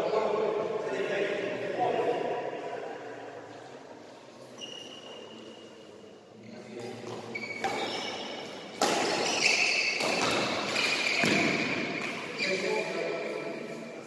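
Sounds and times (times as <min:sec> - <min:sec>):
shoes squeaking on court floor: 0:04.3 - 0:05.9, 0:06.6 - 0:13.4
racket hitting shuttlecock: 0:06.8 - 0:12.4.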